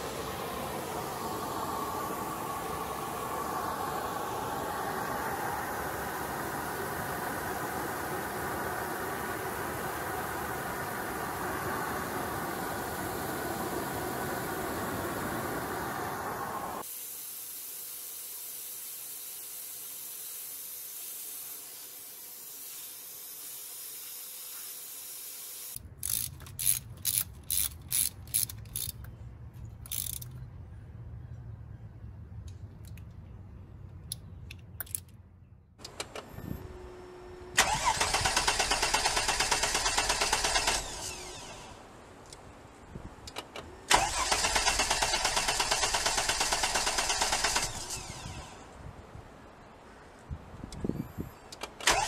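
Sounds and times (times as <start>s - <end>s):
steady hiss: 0.0s - 26.2s
torque wrench ratchet clicks: 25.8s - 29.1s, 29.8s - 30.4s.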